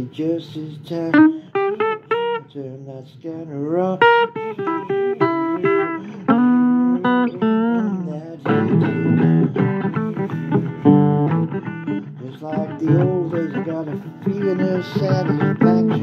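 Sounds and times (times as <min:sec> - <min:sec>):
person singing: 0:00.0 - 0:11.2, 0:12.0 - 0:16.0
acoustic guitar blues: 0:00.0 - 0:16.0.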